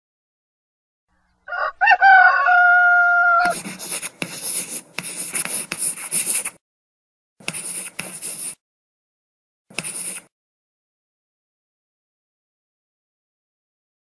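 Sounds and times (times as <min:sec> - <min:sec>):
rooster crowing: 0:01.4 - 0:03.6.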